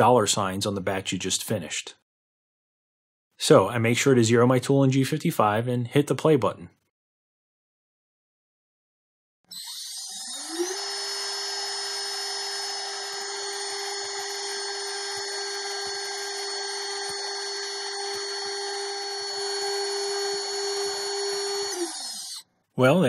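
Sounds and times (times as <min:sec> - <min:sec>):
router spindle high whine: 0:09.5 - 0:22.4.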